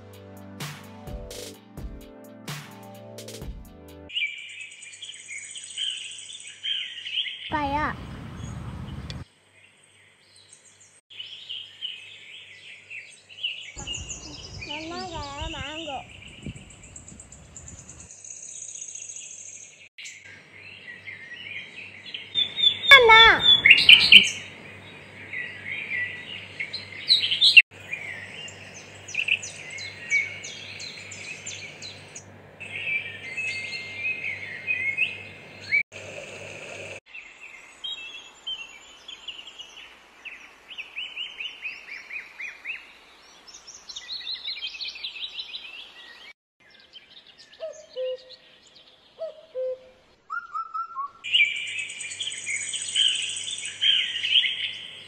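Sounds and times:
small birds chirping: 0:04.1 - 0:49.7, 0:50.3 - 0:55.0.

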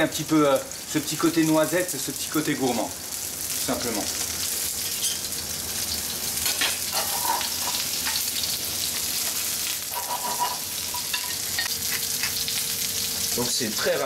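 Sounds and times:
butter sizzling in a frying pan: 0:00.0 - 0:14.0
metal spoon scraping a pan: 0:06.4 - 0:08.3, 0:09.9 - 0:12.4.

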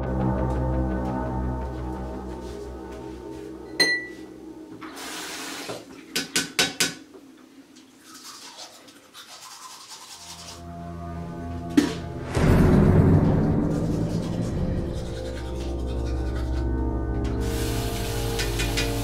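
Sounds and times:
teeth being brushed: 0:07.8 - 0:10.6, 0:13.6 - 0:19.0.

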